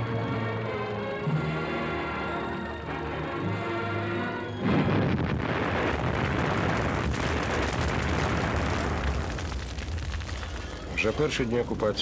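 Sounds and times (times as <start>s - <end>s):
music with held tones: 0.0s - 4.6s
loud explosion with rumble and cracks: 4.6s - 12.0s.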